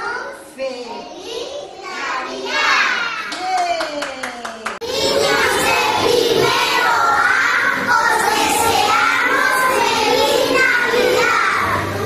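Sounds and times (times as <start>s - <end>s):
children singing: 4.8s - 12.0s.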